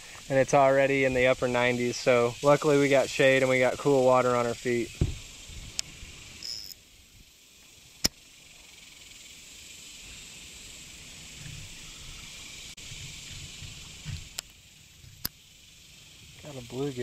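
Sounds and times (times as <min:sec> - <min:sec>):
insect chorus: 0:00.0 - 0:17.0
sharp click: 0:08.0 - 0:08.2.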